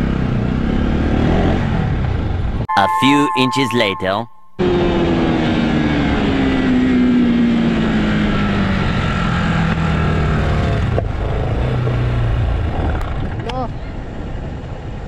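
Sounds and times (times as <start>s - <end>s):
wind and road noise: 4.7s - 15.0s.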